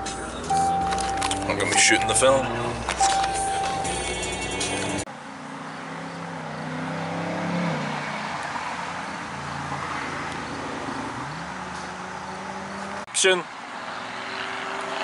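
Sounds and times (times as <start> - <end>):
music playing in car: 0.0 - 5.1
passing vehicle engine hum: 0.0 - 15.0.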